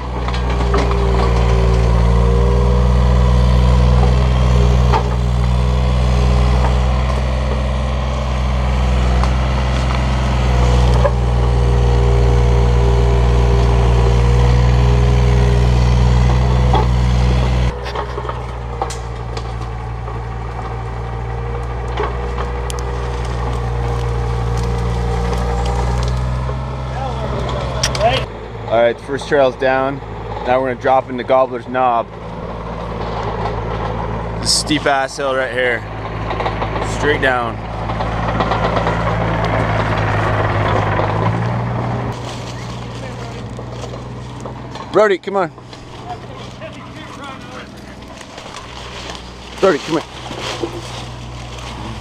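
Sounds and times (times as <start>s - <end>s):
wood and brush cracking: 0.0s - 28.3s, 32.5s - 52.0s
excavator diesel engine: 0.0s - 52.0s
steady machine whine: 0.0s - 52.0s.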